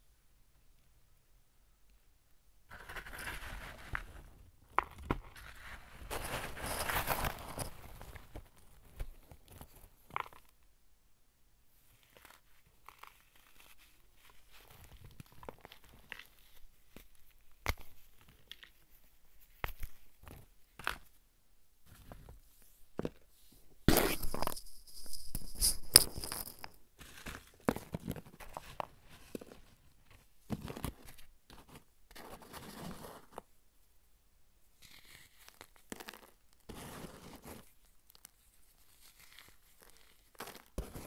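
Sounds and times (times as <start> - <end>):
dry powder crunching by hand: 23.9 - 27.9, 34.8 - 41.0.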